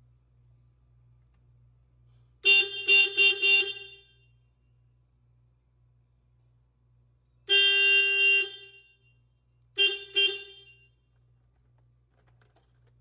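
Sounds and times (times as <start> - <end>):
electric car horn honking: 2.4 - 4.2, 7.5 - 9.1, 9.8 - 11.0.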